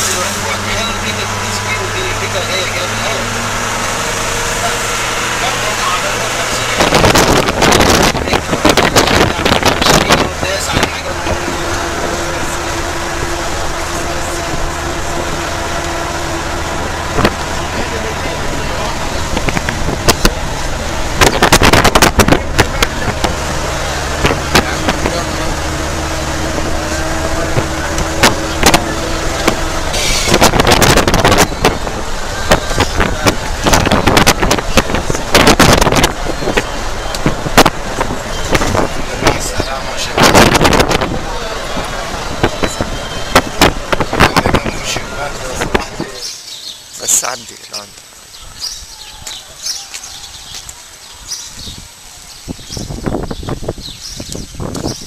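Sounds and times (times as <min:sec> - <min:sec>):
vehicle engine and road noise: 0:00.0 - 0:55.0
wind on microphone: 0:06.5 - 0:15.6, 0:16.6 - 0:17.9, 0:18.5 - 0:46.2, 0:50.1 - 0:55.0.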